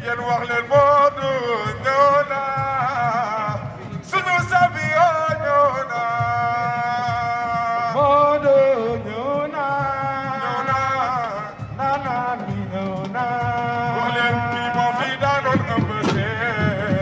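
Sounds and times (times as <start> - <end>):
amplified chant-like music: 0.0 - 17.0
person singing long ornamented notes: 0.0 - 17.0.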